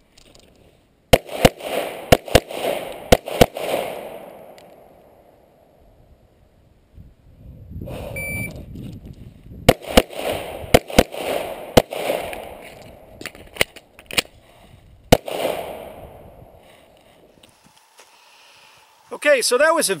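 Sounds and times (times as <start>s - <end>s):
pistol shots: 1.1s - 5.2s, 9.7s - 13.0s, 15.1s - 16.3s
shot timer beep: 8.2s - 8.6s.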